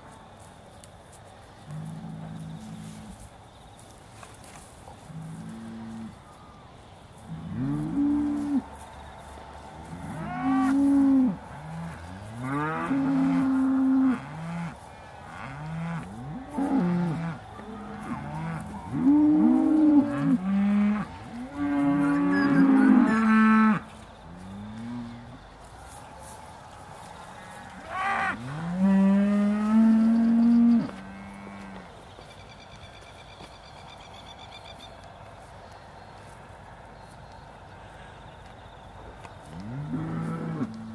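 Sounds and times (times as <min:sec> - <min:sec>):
cows mooing: 0:15.4 - 0:23.8.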